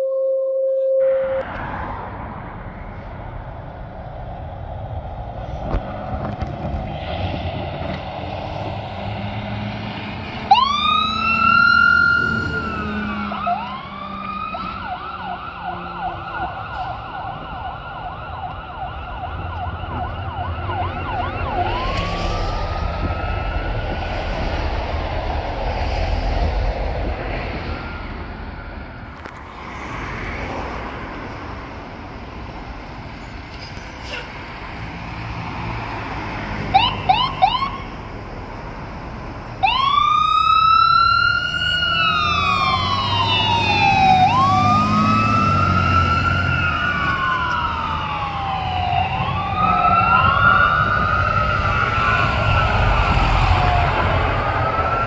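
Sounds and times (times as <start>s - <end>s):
diesel and traffic rumble: 1.2s - 55.0s
fire engine siren wailing and yelping: 7.8s - 29.4s, 35.6s - 38.6s, 39.4s - 55.0s.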